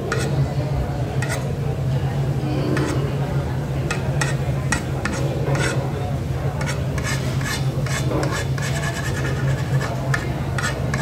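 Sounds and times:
utensils scraping dishes: 0:00.0 - 0:00.4, 0:01.1 - 0:01.5, 0:02.4 - 0:03.2, 0:03.9 - 0:05.9, 0:06.5 - 0:11.0.

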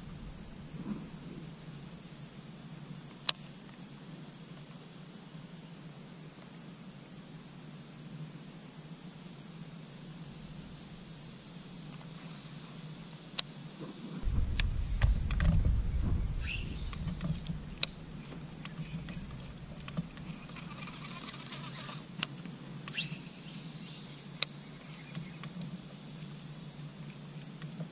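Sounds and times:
low rumbling and knocks: 0:00.0 - 0:02.2, 0:10.2 - 0:11.4, 0:14.2 - 0:21.0
insects droning: 0:00.0 - 0:02.4, 0:14.2 - 0:22.0.

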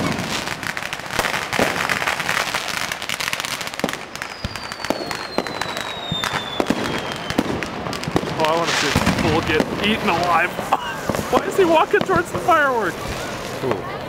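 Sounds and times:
fireworks crackling and banging: 0:00.0 - 0:14.0
high falling whistle: 0:04.2 - 0:07.4.

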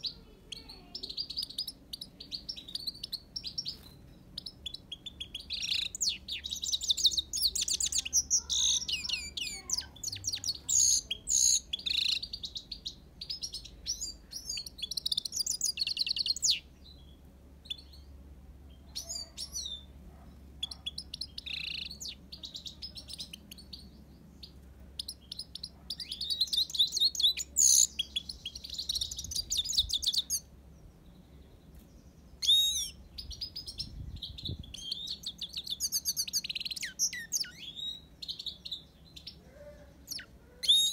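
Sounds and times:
finch singing high trills: 0:00.0 - 0:18.1, 0:25.0 - 0:30.5, 0:32.4 - 0:40.9.

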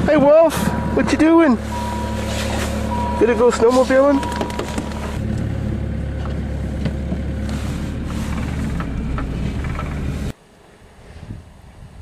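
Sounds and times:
vehicle engine humming: 0:00.0 - 0:12.0
faint wind noise: 0:07.4 - 0:12.0.

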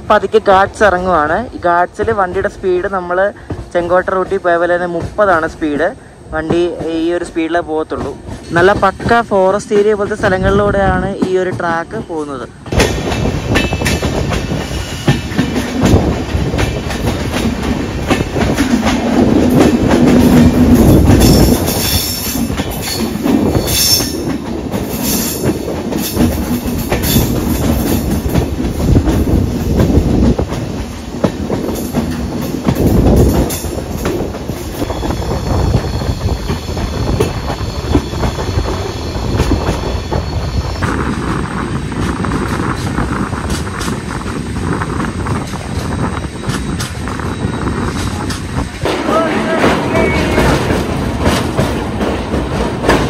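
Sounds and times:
train rumbling: 0:00.0 - 0:53.0
wheels clacking over rail joints: 0:06.4 - 0:53.0
wheel squeal: 0:34.8 - 0:41.2.

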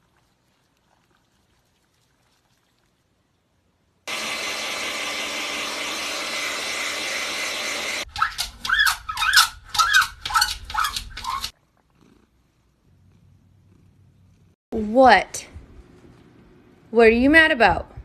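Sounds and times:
hair dryer blowing: 0:04.1 - 0:08.1.

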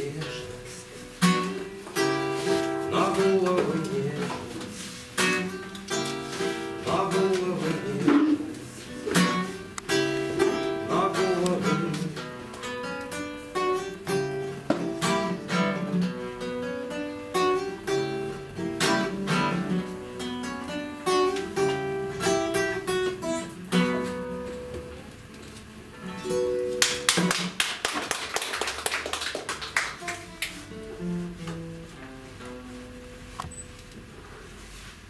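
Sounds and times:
classical guitar playing: 0:00.0 - 0:27.6, 0:29.6 - 0:34.4.

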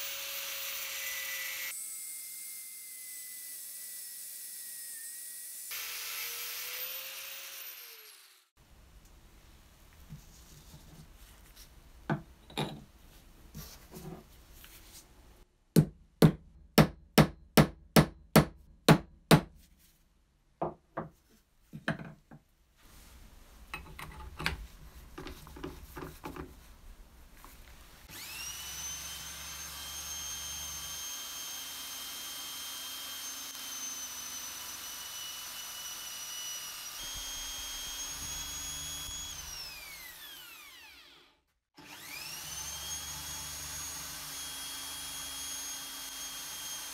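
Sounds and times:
electric drill whining: 0:28.1 - 0:46.9.

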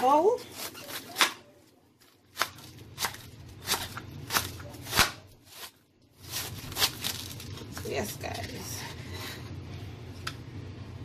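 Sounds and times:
knife chopping cabbage: 0:02.3 - 0:07.4.

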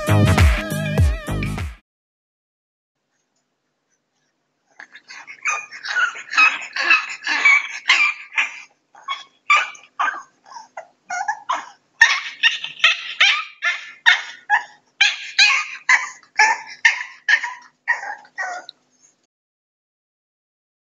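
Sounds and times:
puppies whimpering and yipping: 0:04.8 - 0:19.2.

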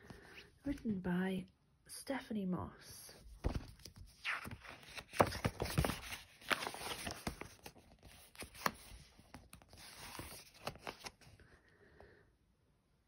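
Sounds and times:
book pages turning: 0:03.3 - 0:11.4
paper rustling and crinkling: 0:03.3 - 0:11.4.

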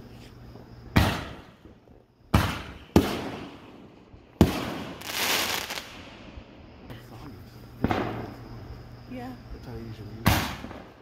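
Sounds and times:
fireworks rushing hiss: 0:00.0 - 0:09.4
fireworks bangs echoing: 0:00.9 - 0:06.3, 0:07.8 - 0:08.5, 0:10.2 - 0:11.0.

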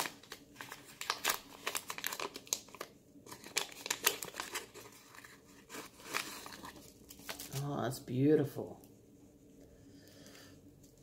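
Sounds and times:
paper wrapping crinkling: 0:00.0 - 0:07.8.

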